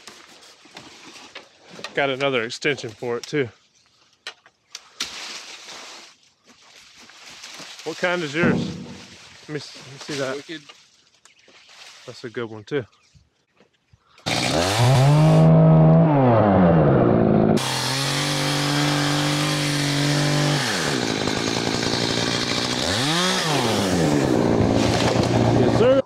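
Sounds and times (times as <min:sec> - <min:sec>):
chainsaw running at high revs: 0:14.3 - 0:26.0.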